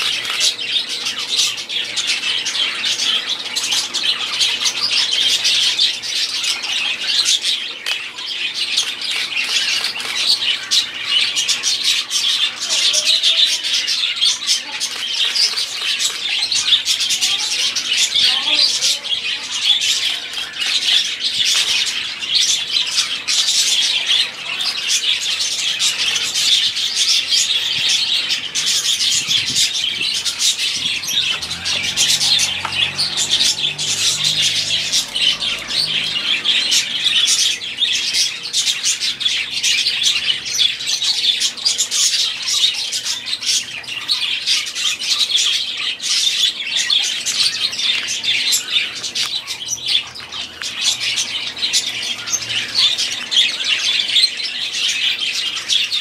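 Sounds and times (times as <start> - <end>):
budgerigars chattering: 0.0 - 56.0.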